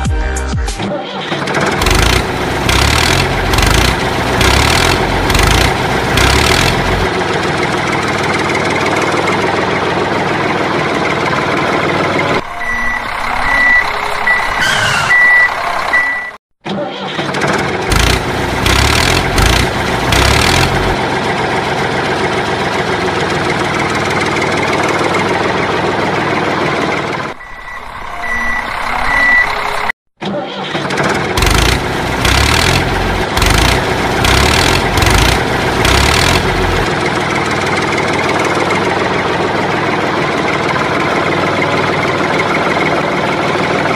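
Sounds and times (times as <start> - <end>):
tractor engine starting and running: 1.2 - 29.9, 30.6 - 43.9
short high beeps: 12.5 - 16.4, 27.4 - 29.6.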